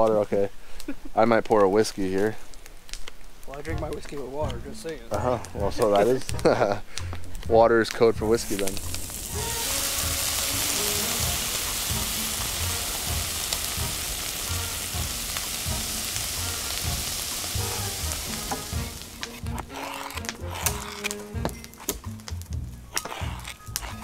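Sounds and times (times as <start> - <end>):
food sizzling in a pan: 8.0 - 24.0.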